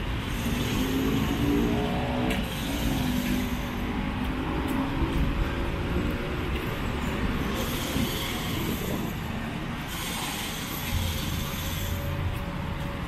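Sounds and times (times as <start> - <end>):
road traffic passing: 0.0 - 13.0.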